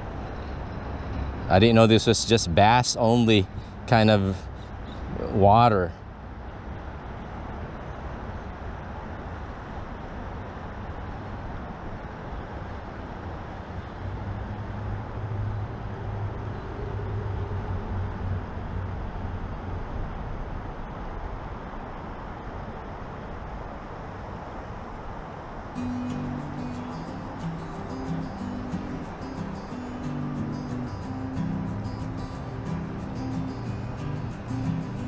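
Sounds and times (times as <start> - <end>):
road traffic rumble: 0.0 - 35.0
vehicle passing: 25.8 - 35.0.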